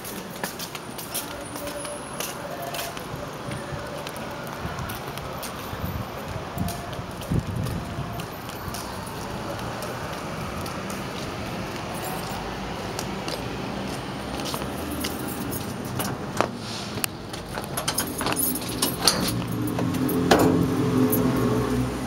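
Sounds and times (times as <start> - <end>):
keys jangling: 14.5 - 16.2, 17.4 - 21.5
metal door pulled open: 17.4 - 21.4
metal lock clicking: 17.6 - 19.5.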